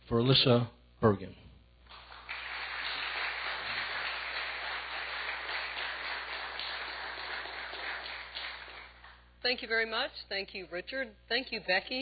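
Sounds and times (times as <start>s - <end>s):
audience applauding: 1.9s - 9.2s.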